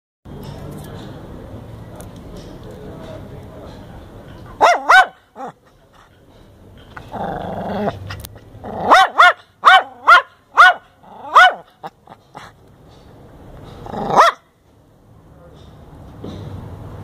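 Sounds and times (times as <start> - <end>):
small dog barking in high yaps: 4.6 - 5.5, 8.8 - 11.7, 14.0 - 14.5
dog growling: 7.1 - 9.0, 13.8 - 14.2.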